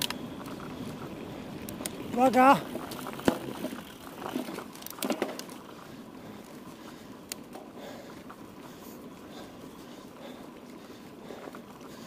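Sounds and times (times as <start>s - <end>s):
tyre and wind noise: 0.0s - 6.7s
bike knocks and rattles: 2.2s - 5.6s.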